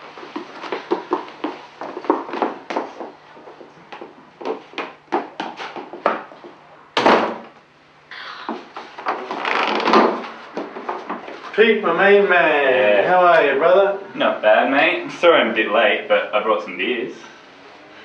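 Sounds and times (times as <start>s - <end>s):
footsteps on wooden floor: 0.0s - 6.6s, 8.5s - 11.5s
wooden door rattling and scraping: 9.1s - 11.2s.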